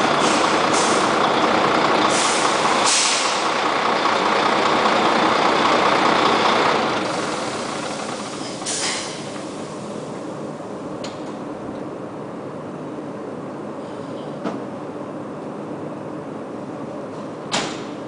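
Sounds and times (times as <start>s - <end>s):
diesel truck engine idling: 0.0s - 11.6s
air hiss: 0.2s - 1.1s, 2.1s - 3.5s, 7.1s - 9.9s.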